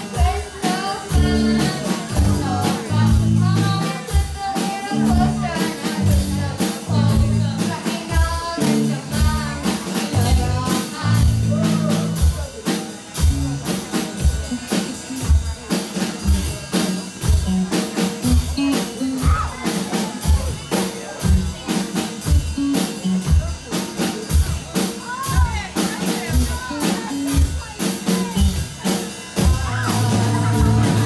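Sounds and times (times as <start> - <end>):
person singing lead vocal: 0.0 - 12.4, 29.4 - 31.0
drum kit: 0.0 - 31.0
electric guitars: 0.0 - 31.0
electric bass: 1.1 - 3.9, 4.9 - 19.6, 20.2 - 27.7, 28.3 - 31.0.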